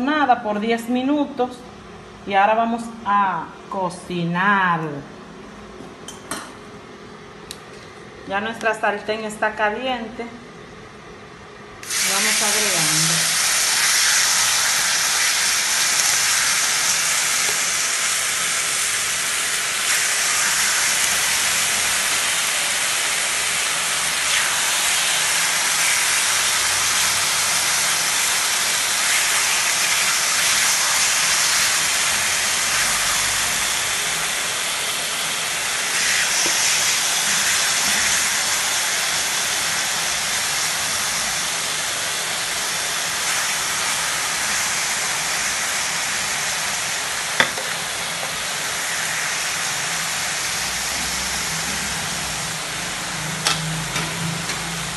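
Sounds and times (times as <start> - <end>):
steaks sizzling in frying pan: 11.8 - 54.9.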